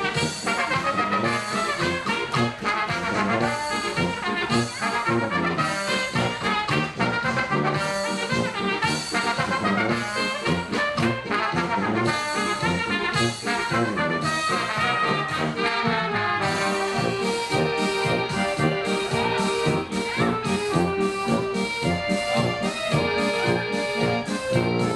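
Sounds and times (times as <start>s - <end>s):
oompah brass band music: 0.0s - 24.9s.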